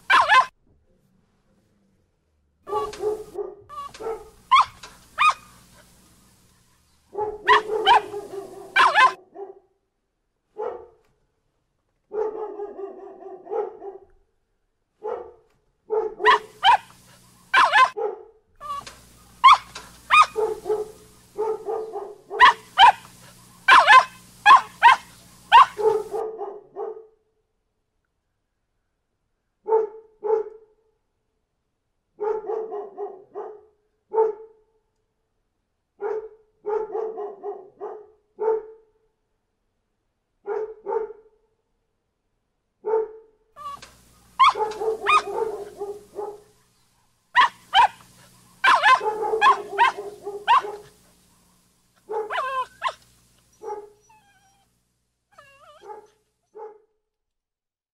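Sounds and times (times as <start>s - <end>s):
dog yips: 0.0s - 0.5s, 2.7s - 5.8s, 7.2s - 9.2s, 16.0s - 18.0s, 18.6s - 26.2s, 43.0s - 46.1s, 47.4s - 48.0s, 48.6s - 50.9s, 52.2s - 54.7s, 55.4s - 56.1s
dogs barking: 0.0s - 0.5s, 2.7s - 6.5s, 7.1s - 9.6s, 10.6s - 11.0s, 12.1s - 14.0s, 15.0s - 27.0s, 32.2s - 34.5s, 36.0s - 38.8s, 42.9s - 46.6s, 47.4s - 54.6s, 55.4s - 56.8s.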